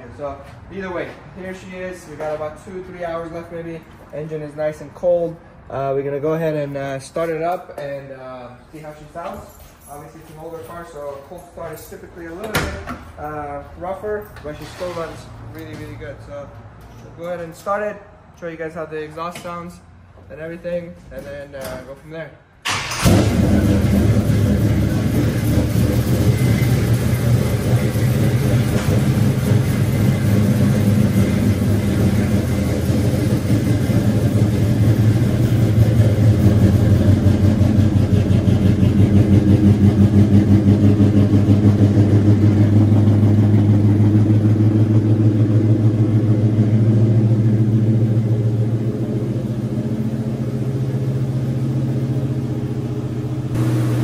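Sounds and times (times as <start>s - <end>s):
car engine idling: 22.7s - 54.0s.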